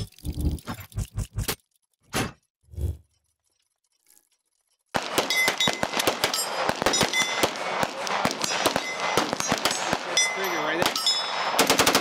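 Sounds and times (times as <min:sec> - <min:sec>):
rapid gunfire: 0:04.9 - 0:12.0.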